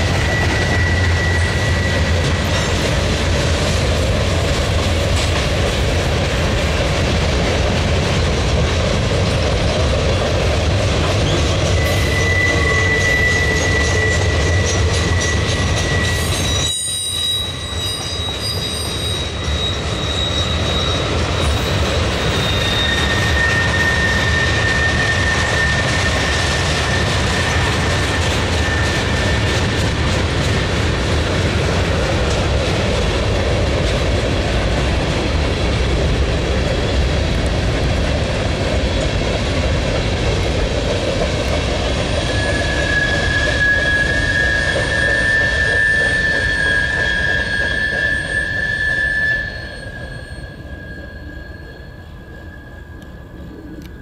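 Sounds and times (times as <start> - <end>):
high-pitched wheel squeals: 0.0 - 2.9, 11.2 - 30.6, 42.0 - 54.0
train wheels rumbling on rails: 0.0 - 54.0.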